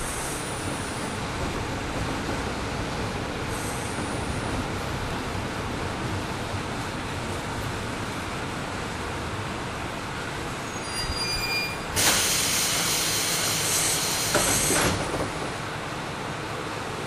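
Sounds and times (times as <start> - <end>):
compressed air hiss: 12.0 - 15.0.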